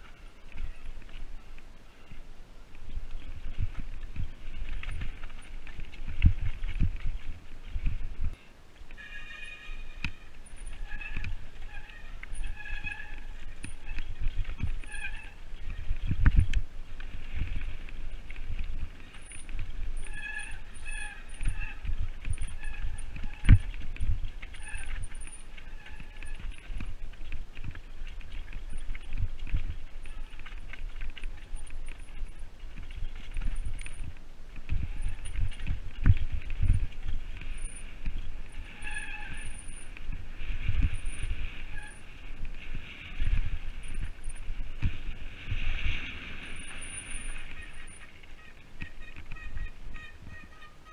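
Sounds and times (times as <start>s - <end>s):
bike tyres rumbling on dirt: 0.0s - 50.9s
short high-pitched squeals: 8.9s - 15.4s, 19.1s - 26.7s, 36.6s - 42.2s
short squeal: 9.0s - 13.3s, 38.6s - 39.9s.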